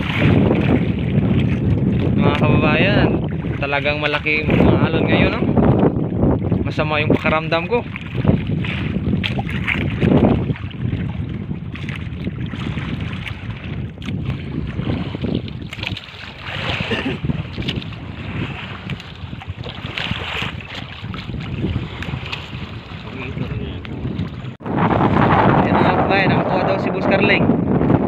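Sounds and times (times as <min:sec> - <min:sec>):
sea waves washing around boat: 0:00.0 - 0:28.0
wind buffeting microphone: 0:00.0 - 0:28.0.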